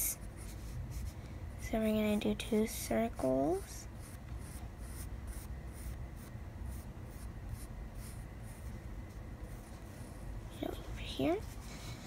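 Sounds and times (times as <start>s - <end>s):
pencil scratching on paper: 4.0s - 8.7s.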